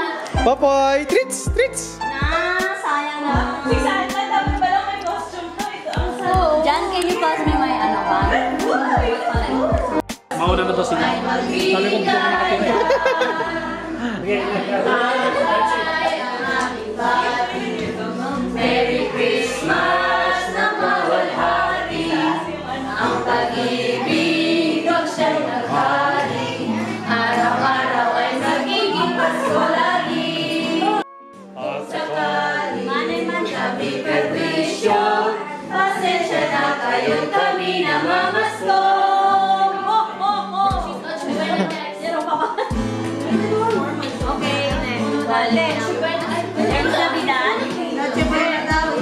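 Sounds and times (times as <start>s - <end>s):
group of voices singing: 1.4s - 49.0s.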